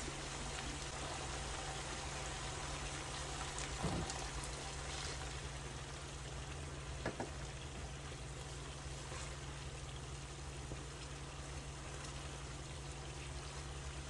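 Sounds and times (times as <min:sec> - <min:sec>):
meat sizzling in a frying pan: 0:00.0 - 0:05.7
light knocks: 0:07.0 - 0:07.4.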